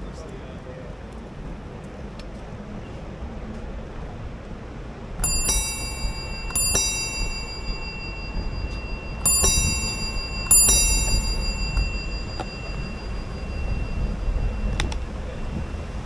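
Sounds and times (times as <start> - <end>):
bicycle bell dinging: 5.2 - 16.0.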